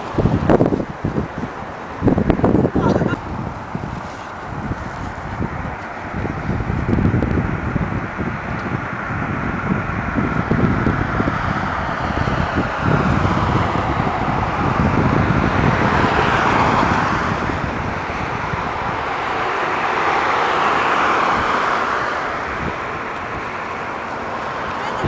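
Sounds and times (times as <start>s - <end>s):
cars driving past: 0.0s - 25.0s
wind buffeting microphone: 0.0s - 25.0s.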